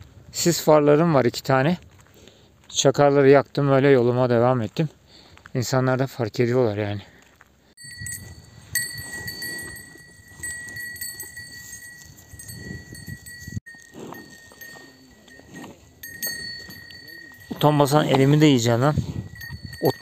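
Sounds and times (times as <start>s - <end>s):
cattle grazing: 7.2s - 20.0s
small bell ringing: 7.8s - 20.0s.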